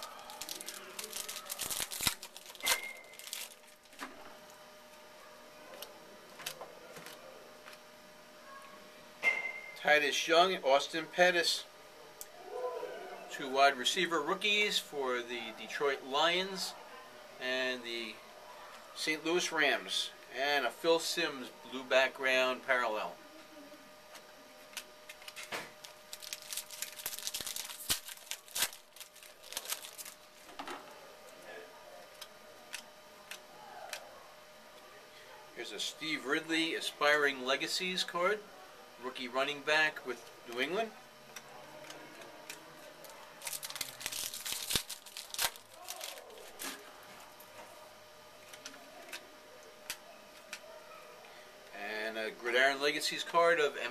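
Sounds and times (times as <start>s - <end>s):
wrapper tearing and crinkling: 0.0s - 4.0s, 24.7s - 30.6s, 43.0s - 46.8s.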